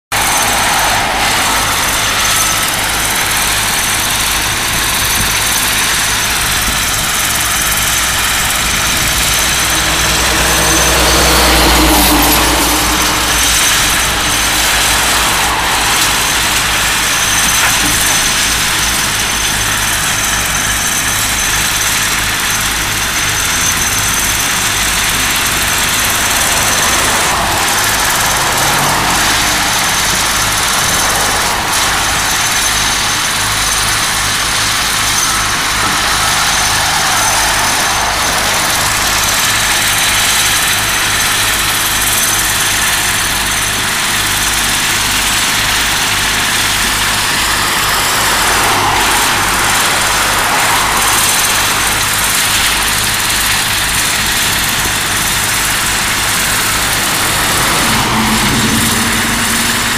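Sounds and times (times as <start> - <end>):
diesel engines running: 0.0 - 59.9.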